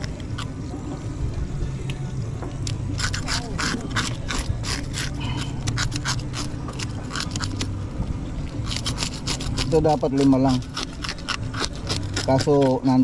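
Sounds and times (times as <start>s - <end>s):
blade scraping fish scales: 2.9s - 7.8s, 8.5s - 13.0s.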